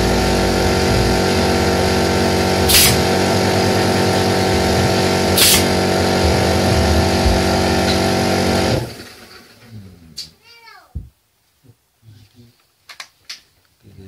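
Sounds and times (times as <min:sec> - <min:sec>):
steady engine-like drone: 0:00.0 - 0:09.0.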